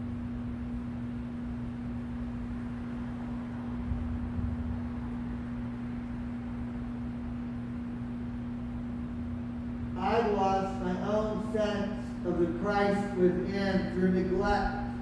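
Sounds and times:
steady hum: 0:00.0 - 0:15.0
faint low rumble: 0:02.7 - 0:07.3.

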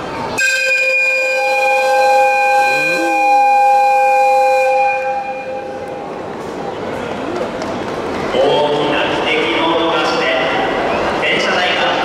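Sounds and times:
locomotive air whistle blast: 0:00.4 - 0:06.0.

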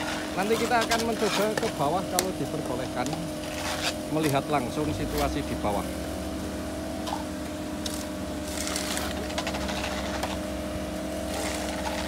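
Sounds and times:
scrapes and knocks: 0:00.0 - 0:02.3, 0:07.9 - 0:10.4, 0:11.3 - 0:12.0
diesel engine running: 0:00.0 - 0:12.0.

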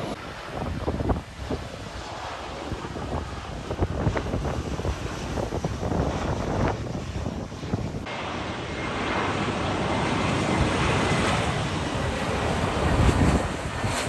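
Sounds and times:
jet airliner engine rush: 0:00.0 - 0:14.0
wind buffeting microphone: 0:00.0 - 0:14.0.

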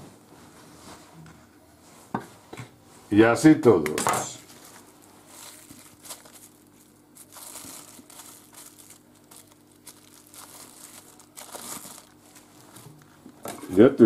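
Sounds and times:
faint low hum: 0:00.0 - 0:14.0
plastic cling film crinkling: 0:04.3 - 0:13.4.

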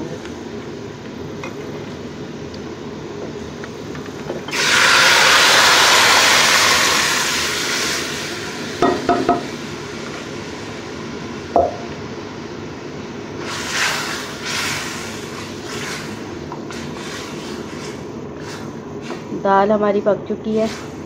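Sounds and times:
loud hiss of poured lentils: 0:04.5 - 0:08.8, 0:13.4 - 0:19.4, 0:20.5 - 0:21.0
onions sizzling in oil: 0:04.5 - 0:11.5, 0:13.4 - 0:19.5.

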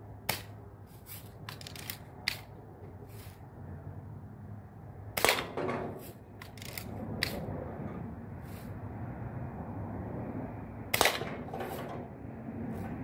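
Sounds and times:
lever cocking clicks: 0:01.5 - 0:02.5, 0:06.4 - 0:07.4
bb gun firing pops: 0:05.2 - 0:05.7, 0:11.0 - 0:11.5.

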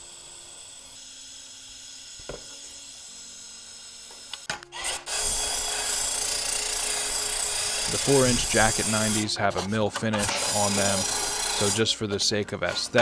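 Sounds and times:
abrasive wheel polishing steel pipe: 0:06.9 - 0:13.0.

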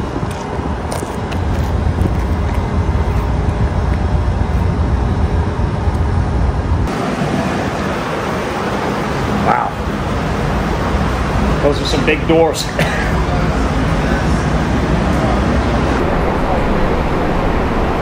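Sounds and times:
wind on microphone: 0:00.0 - 0:09.1
low outdoor rumble: 0:00.0 - 0:18.0.

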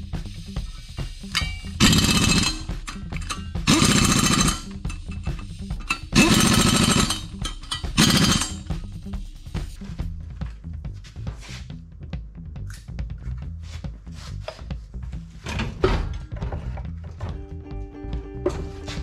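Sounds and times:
air impact wrench hammering: 0:00.7 - 0:09.0.

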